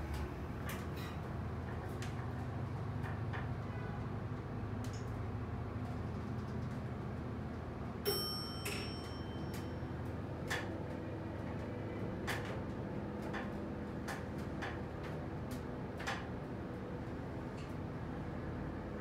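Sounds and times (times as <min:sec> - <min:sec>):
elevator low hum: 0:00.0 - 0:19.0
sharp click with high ring: 0:08.1 - 0:09.8.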